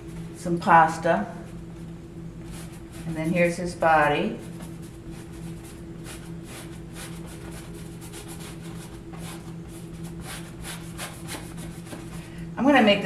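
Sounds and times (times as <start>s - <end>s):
steady low hum: 0.0s - 13.0s
paintbrush scrubbing canvas: 2.5s - 3.7s, 4.3s - 12.2s.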